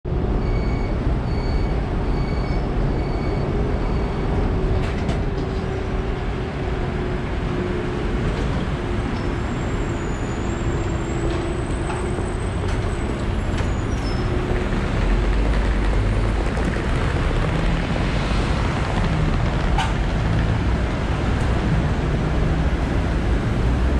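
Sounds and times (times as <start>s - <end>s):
another tram rumbling: 0.1s - 23.9s
steel wheels rumbling on rail: 0.1s - 23.9s
tram motor hum: 0.1s - 23.9s
high wheel squeal: 0.4s - 4.6s, 9.0s - 17.3s.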